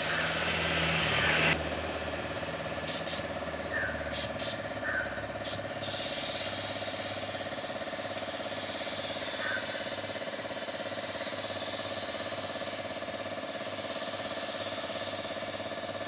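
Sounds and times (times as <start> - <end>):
paint spray gun hissing: 0.0 - 1.6, 2.8 - 16.0
air compressor running: 0.0 - 16.0.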